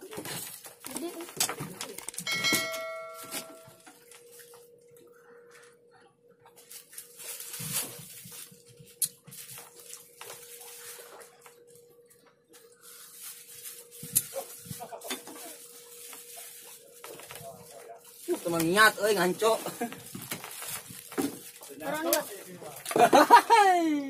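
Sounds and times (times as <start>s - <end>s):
faint voices: 14.2s - 19.7s.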